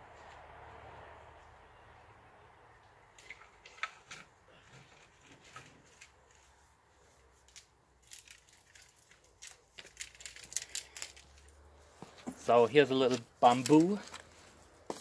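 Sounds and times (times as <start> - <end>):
faint clicks and crackles: 7.4 - 11.6.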